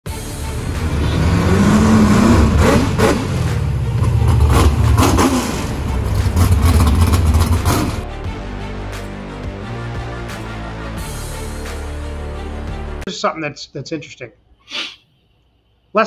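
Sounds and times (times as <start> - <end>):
car engine revving: 0.2 - 8.1.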